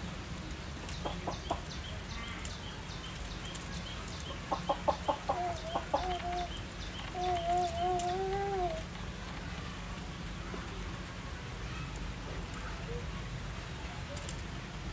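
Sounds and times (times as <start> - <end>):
animal clucking calls: 0.9 - 1.9, 4.2 - 8.7.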